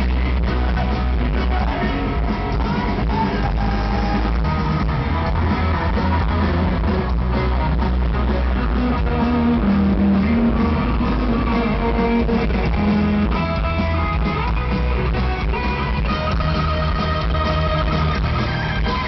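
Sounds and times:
live rock band: 0:00.0 - 0:19.0.

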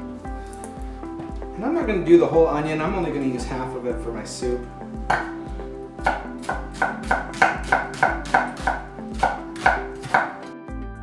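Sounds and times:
knife slicing onion on wooden board: 0:06.0 - 0:10.4.

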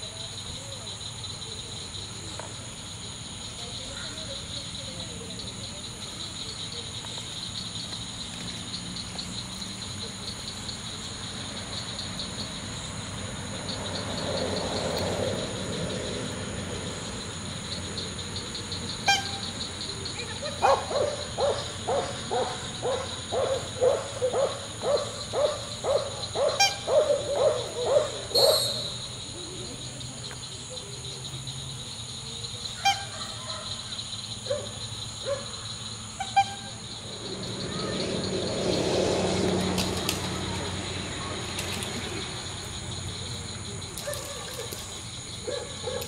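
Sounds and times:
dog barking: 0:20.6 - 0:28.8, 0:32.8 - 0:33.8, 0:34.4 - 0:35.6, 0:44.0 - 0:44.7, 0:45.4 - 0:46.0.

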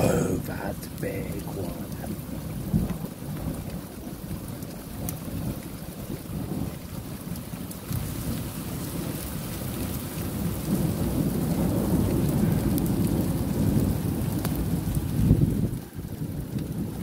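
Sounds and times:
steady rain: 0:00.0 - 0:17.0
thunder rumbling: 0:10.2 - 0:17.0.

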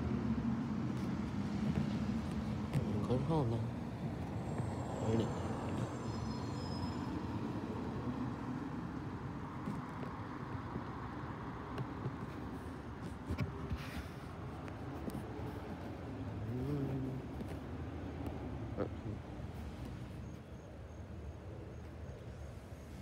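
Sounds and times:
vehicle engines rumbling: 0:00.0 - 0:23.0
faint high whistling tones: 0:05.2 - 0:07.5.

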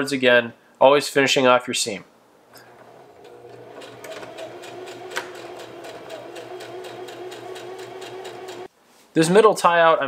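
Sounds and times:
sewing machine stitching: 0:02.6 - 0:08.7.

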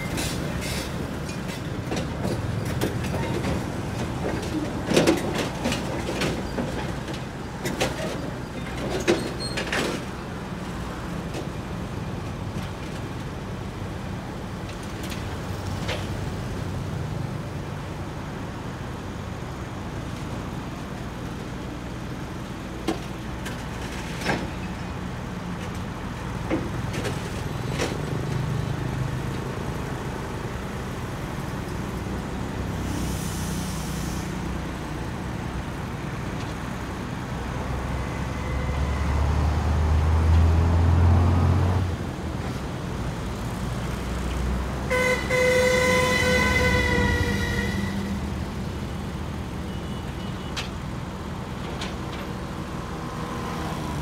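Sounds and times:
vehicle horn: 0:44.9 - 0:48.2.

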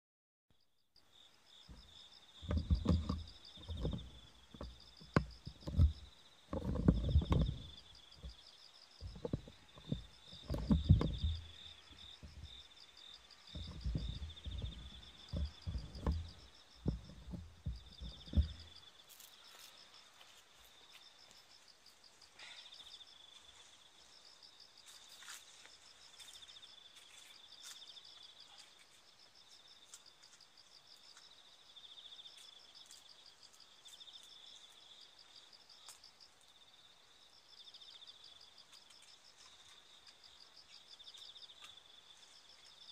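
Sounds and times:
insects chirping: 0:00.5 - 0:42.9
thumps on the microphone: 0:01.7 - 0:08.4, 0:09.0 - 0:12.6, 0:13.5 - 0:18.8
faint clicks and rustles: 0:01.7 - 0:22.6.

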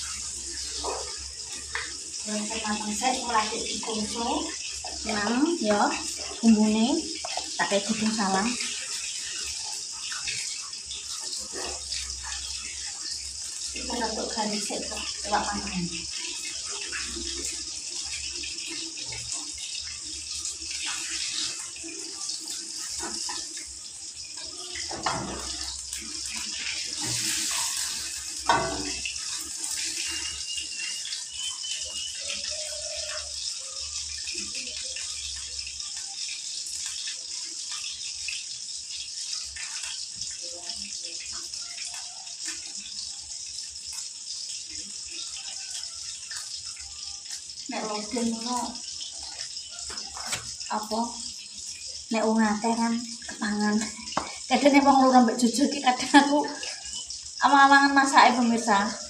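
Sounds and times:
food sizzling in hot oil: 0:00.0 - 0:59.0
spatula scraping a pan: 0:24.3 - 0:30.6, 0:49.9 - 0:50.6.

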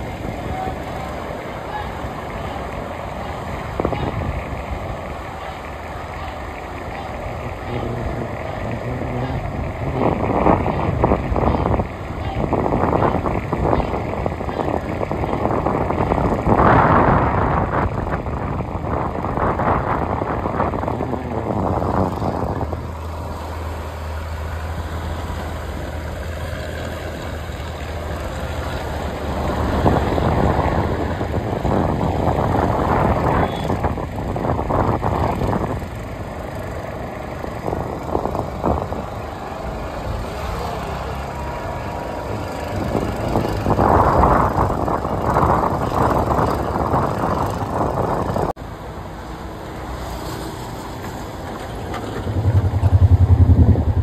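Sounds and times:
boat engine humming: 0:00.0 - 0:54.0
rushing noise: 0:50.1 - 0:54.0.

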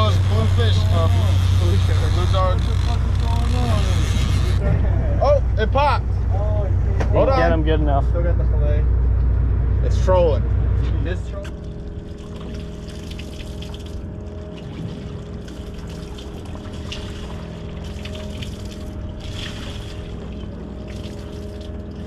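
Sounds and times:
machine hum: 0:00.0 - 0:22.0
water lapping at boat hull: 0:11.5 - 0:22.0.

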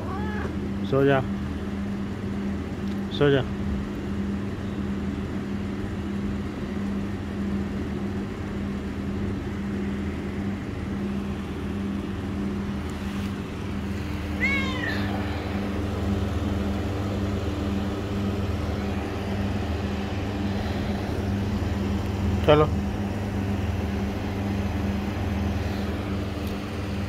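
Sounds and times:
cat meowing: 0:00.0 - 0:00.6, 0:14.3 - 0:15.7
steady low hum: 0:00.0 - 0:27.0.

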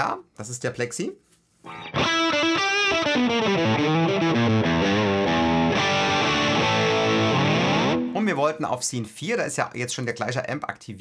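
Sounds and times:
distorted electric guitar: 0:01.7 - 0:08.2.

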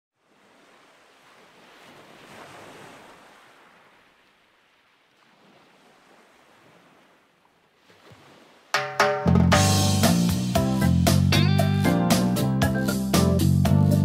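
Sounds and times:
ocean waves washing: 0:00.2 - 0:13.4
music with drums: 0:08.8 - 0:14.0.

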